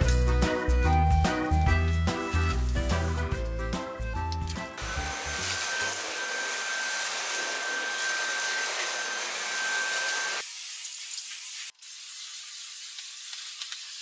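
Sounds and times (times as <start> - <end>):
vacuum cleaner running: 4.8 - 10.4.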